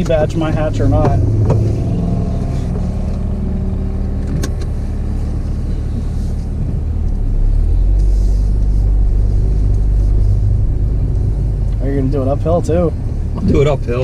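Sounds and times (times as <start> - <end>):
car engine running: 0.0 - 14.0
seatbelt buckle clicking: 4.2 - 4.8.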